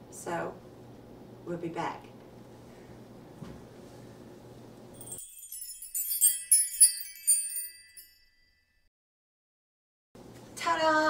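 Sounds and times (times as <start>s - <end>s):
tinkling magic chime sparkle: 5.0s - 8.9s.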